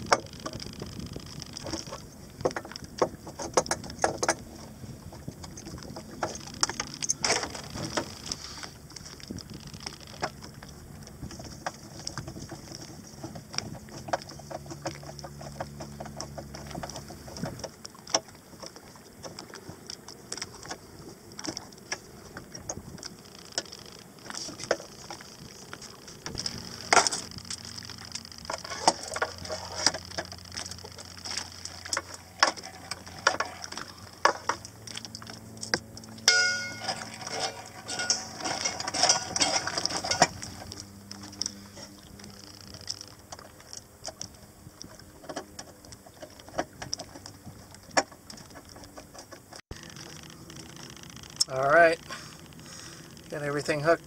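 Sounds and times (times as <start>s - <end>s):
low steady hum: 0.0s - 54.0s
hand tools and metal fittings clinking: 36.2s - 40.7s.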